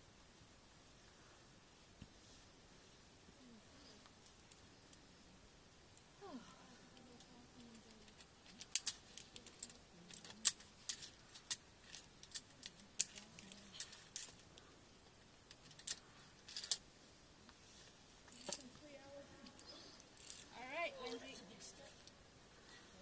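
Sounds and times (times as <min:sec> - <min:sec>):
carabiners clinking on steel cable: 0:08.0 - 0:14.4, 0:15.5 - 0:16.8, 0:18.3 - 0:18.7, 0:20.2 - 0:20.5.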